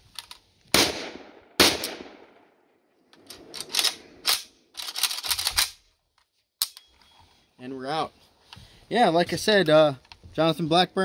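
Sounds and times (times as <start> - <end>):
metallic clicks of rifle handling: 0.1 - 0.5, 3.1 - 7.1
rifle shot: 0.7 - 2.5.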